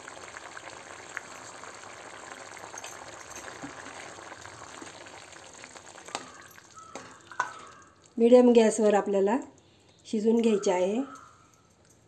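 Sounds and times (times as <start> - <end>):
curry bubbling in a pot: 0.0 - 8.8.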